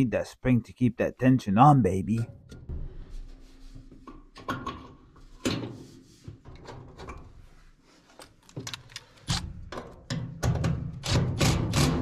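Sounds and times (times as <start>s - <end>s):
metal parts clicking and knocking: 8.2s - 11.7s.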